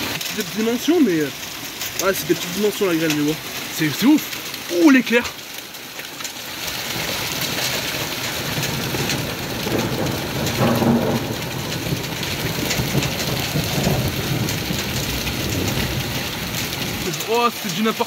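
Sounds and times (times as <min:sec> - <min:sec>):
hailstones pelting down: 0:00.0 - 0:18.0
low rumble of thunder: 0:06.9 - 0:17.1.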